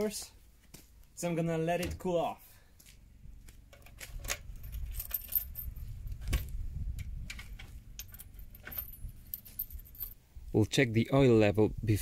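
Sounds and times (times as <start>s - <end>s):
keys jangling: 3.8s - 6.5s, 7.3s - 10.2s.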